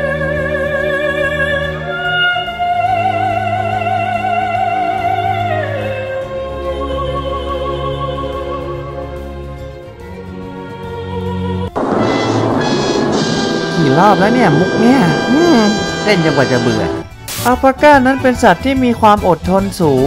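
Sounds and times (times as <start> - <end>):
sustained orchestral chords: 11.8 - 17.1.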